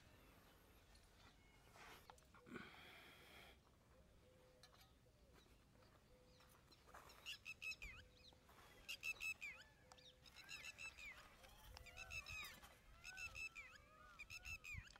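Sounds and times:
birds calling: 0.0 - 14.9
small bird chirps: 4.3 - 14.9.

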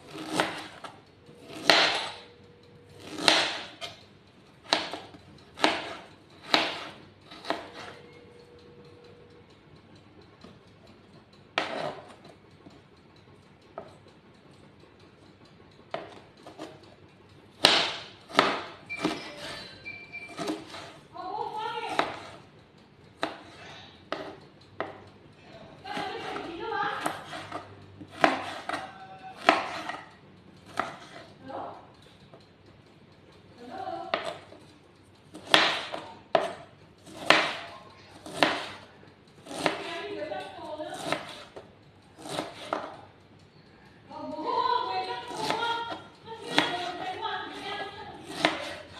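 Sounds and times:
knife chopping on plastic board: 0.0 - 2.3, 3.0 - 4.0, 4.6 - 8.1, 11.6 - 12.4, 15.9 - 16.8, 17.6 - 19.3, 20.3 - 21.0, 21.6 - 22.4, 23.2 - 25.1, 25.9 - 31.3, 34.1 - 34.6, 35.3 - 39.9, 40.9 - 43.0, 45.2 - 48.9.

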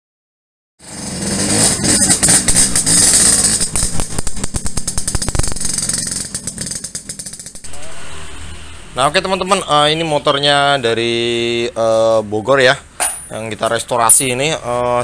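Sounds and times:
moped engine revving: 0.8 - 10.3.

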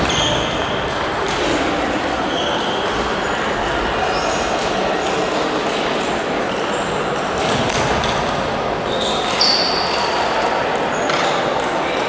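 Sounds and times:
brief high squeaks: 8.9 - 10.0.

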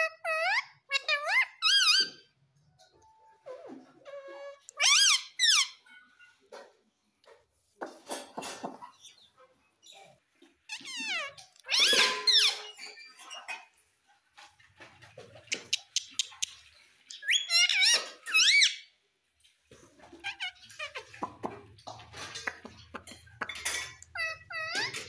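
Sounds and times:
parrot chirping: 0.0 - 2.3, 3.4 - 6.4, 8.8 - 13.6, 15.5 - 19.0, 20.1 - 25.0.

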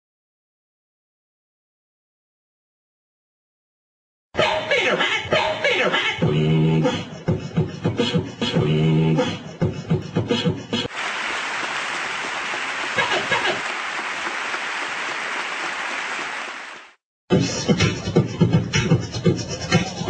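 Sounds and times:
looped speech beatbox pattern: 5.0 - 10.9, 17.3 - 20.0
audience applause: 10.9 - 17.0.

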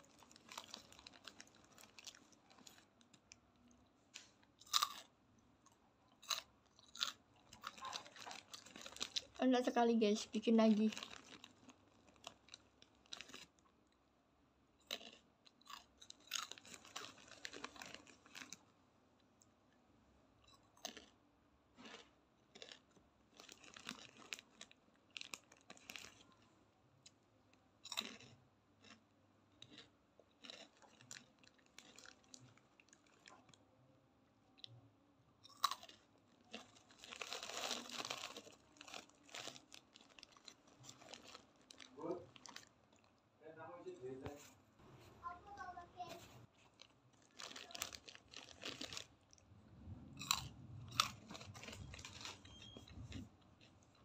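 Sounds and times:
plastic snack bag rustling: 0.0 - 3.4, 6.3 - 13.6, 14.9 - 18.6, 22.6 - 26.4, 30.4 - 33.6, 35.6 - 43.1, 45.2 - 49.4, 50.2 - 54.0
crunching and chewing snack: 0.0 - 14.0, 14.8 - 19.5, 20.4 - 33.7, 34.6 - 34.8, 35.4 - 43.3, 45.2 - 49.6, 50.2 - 54.0.

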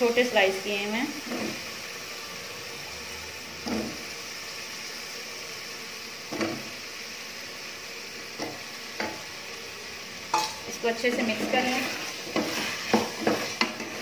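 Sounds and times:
food sizzling in a pot: 0.0 - 14.0
wooden spatula scraping a pot: 1.1 - 1.8, 11.0 - 14.0.

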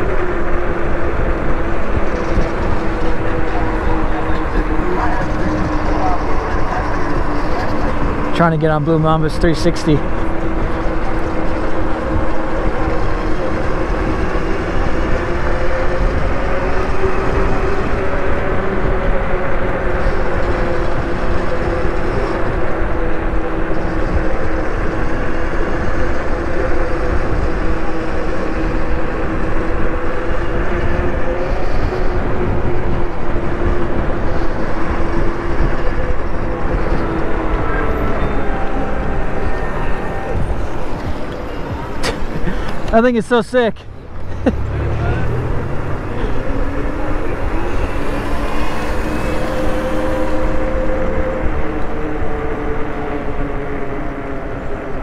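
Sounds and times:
wind rushing over microphone: 0.0 - 55.0
electric bike motor tone: 10.0 - 42.9, 44.0 - 53.4.

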